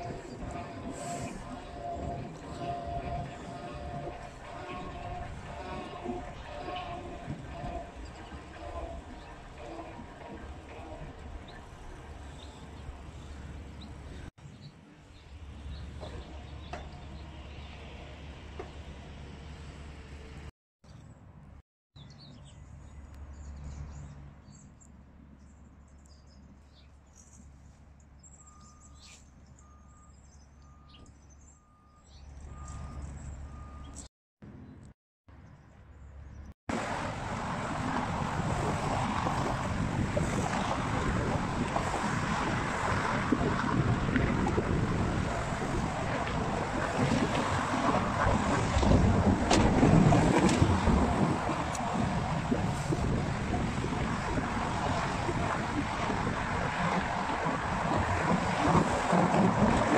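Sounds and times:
wind buffeting microphone: 0.0 - 14.3, 36.7 - 59.9
faint bird chirps: 28.2 - 34.1
car traffic rushing: 36.7 - 59.9.

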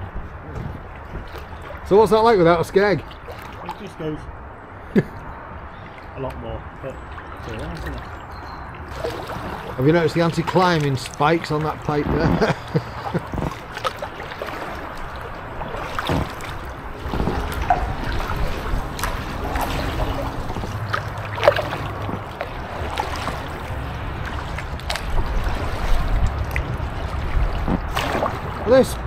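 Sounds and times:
paddle splashing in water: 0.8 - 4.0, 7.0 - 28.8
water dripping off paddle: 5.7 - 28.6.

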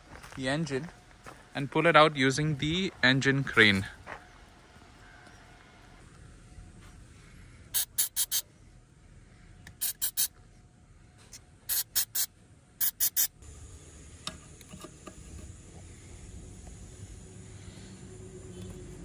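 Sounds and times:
aerosol spray can hissing: 7.8 - 8.4, 9.7 - 10.3, 11.7 - 13.4.

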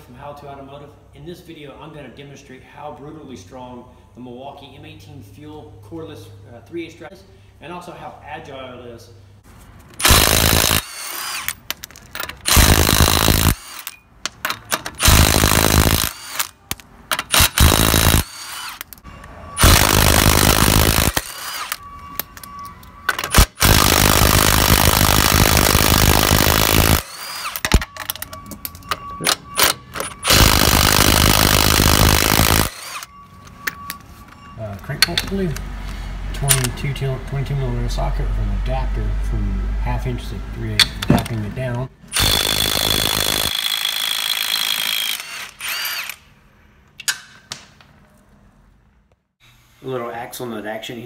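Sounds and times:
impact wrench hammering: 10.0 - 19.0.

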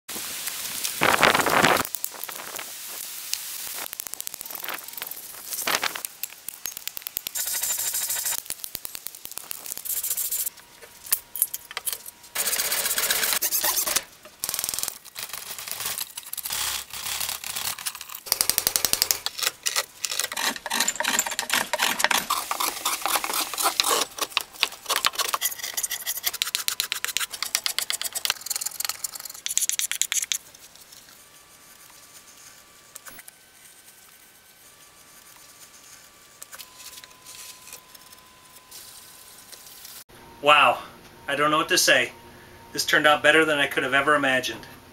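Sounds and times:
gouge scraping wood: 12.4 - 14.0, 18.6 - 30.4
paring cuts in wood: 16.4 - 25.4.

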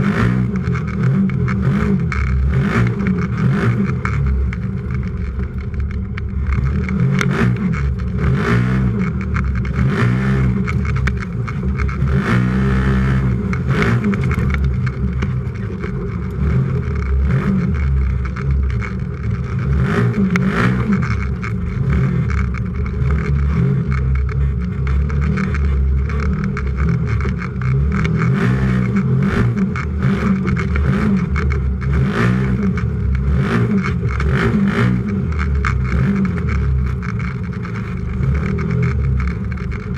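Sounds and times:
engine revving: 0.0 - 39.9
chassis knocks and rattles: 13.2 - 39.9.

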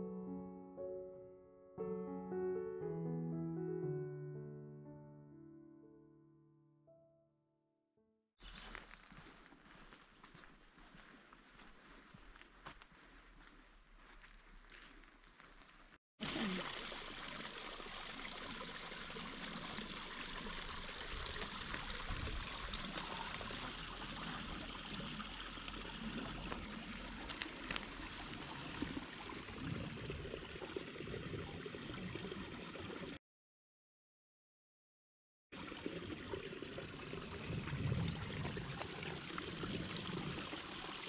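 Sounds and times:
stream water rushing: 16.2 - 31.0.

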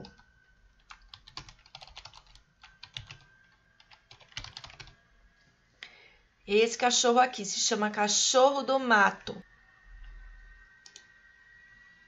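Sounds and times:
computer keyboard typing: 0.0 - 5.0.

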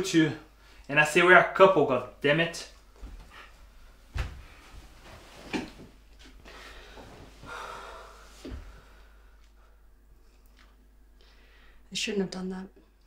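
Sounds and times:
soft knocks and thumps: 4.1 - 6.0
person breathing: 6.4 - 9.9, 11.2 - 11.9.

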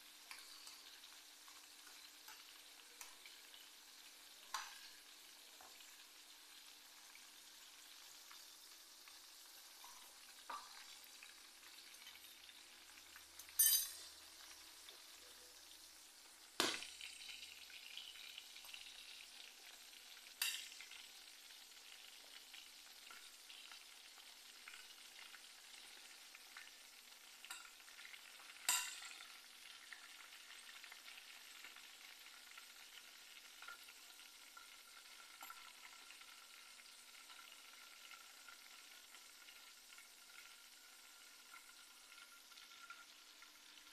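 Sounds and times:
hot oil sizzling: 0.0 - 43.9.

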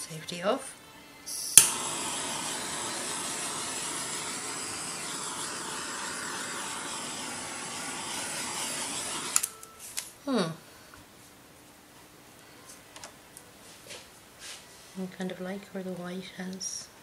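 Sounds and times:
torch flame hissing: 1.3 - 9.5
gas torch ignition click: 1.4 - 9.6.

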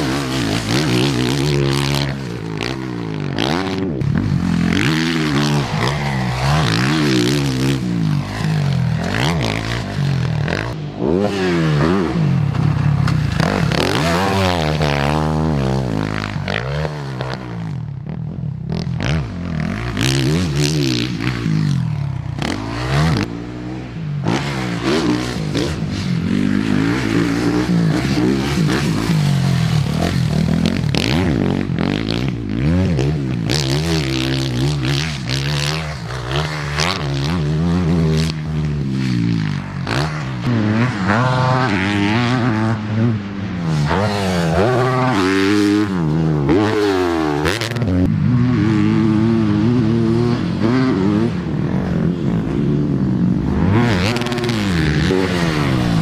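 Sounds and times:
motorbike engine revving: 0.0 - 56.0.

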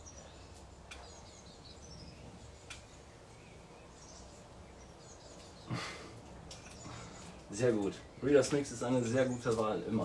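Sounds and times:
faint bird chirps: 0.0 - 10.0
small ticks: 0.5 - 1.2, 2.6 - 3.0.

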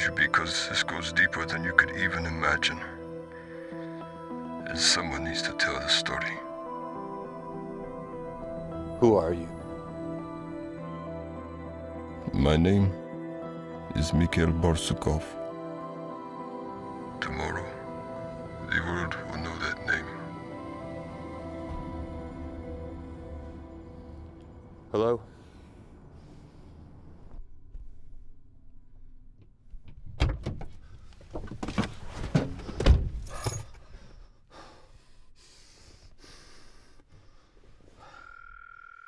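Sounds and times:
tense suspense film score: 0.0 - 29.8
keys jangling: 33.2 - 33.8.

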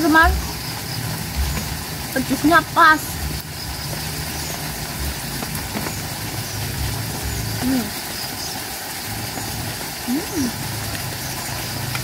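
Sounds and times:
person humming while eating: 10.1 - 10.6.

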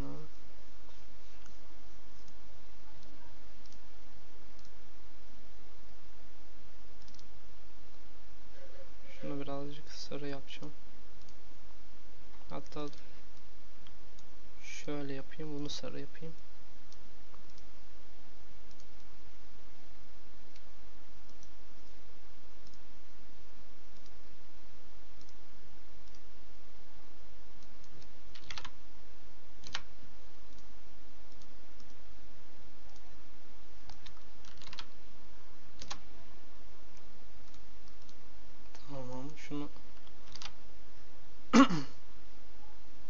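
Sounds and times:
faint steady hiss: 0.0 - 43.0
low hum: 0.0 - 43.0
computer input clicks: 28.0 - 28.7, 29.6 - 29.9, 33.9 - 34.9, 35.8 - 36.0, 40.0 - 40.6.

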